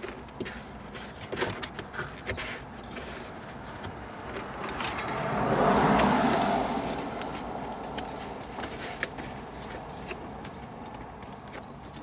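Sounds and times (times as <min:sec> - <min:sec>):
car passing outside: 0:04.3 - 0:08.7.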